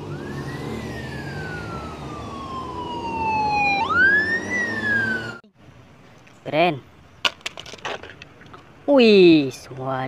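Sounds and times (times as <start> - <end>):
police siren wailing: 0.0 - 5.4
vehicle engines rumbling: 0.0 - 10.0.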